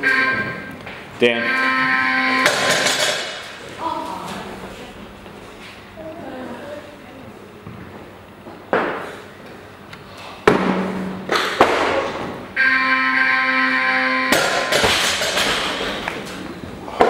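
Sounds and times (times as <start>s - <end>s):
electronic buzzer: 0.0s - 3.0s, 12.6s - 14.7s
barbell crashing onto platform: 14.3s - 16.0s
heavy thuds of feet and barbell: 14.4s - 16.1s.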